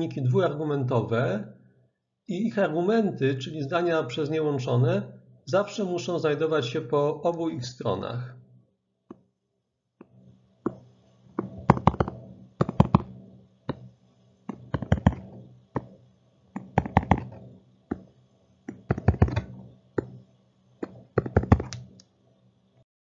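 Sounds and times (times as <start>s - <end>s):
pen tapping and scratching: 11.4s - 13.9s, 14.5s - 15.9s, 16.6s - 18.1s, 18.7s - 20.2s, 20.8s - 22.0s.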